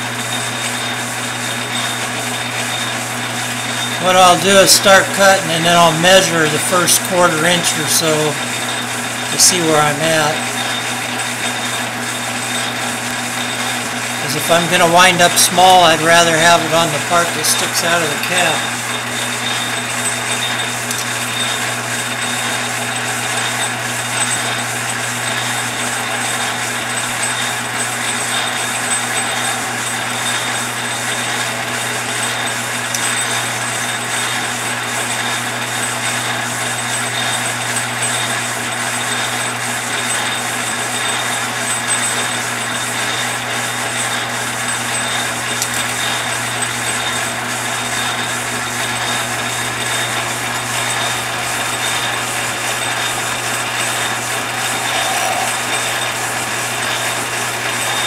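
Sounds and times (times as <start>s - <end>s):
metal lathe running: 0.0s - 58.0s
thin high whine: 3.8s - 11.8s, 13.4s - 19.8s, 50.6s - 58.0s.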